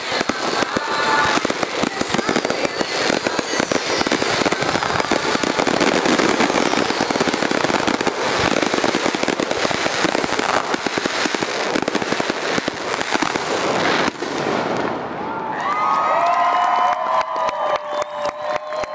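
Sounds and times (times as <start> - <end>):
firework crackling: 0.0 - 15.4.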